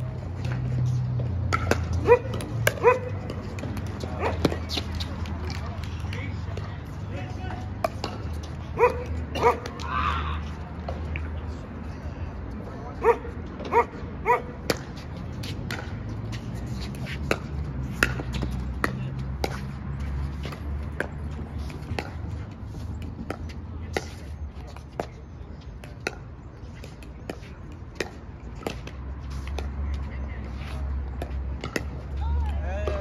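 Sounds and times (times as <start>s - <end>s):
dog barking: 2.0s - 3.1s, 8.8s - 9.6s, 13.0s - 14.5s.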